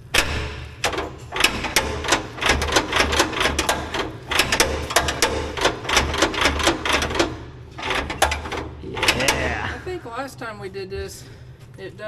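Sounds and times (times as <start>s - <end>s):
metallic clicking and rattling: 0.0s - 9.6s
low pulsing hum: 1.1s - 12.0s.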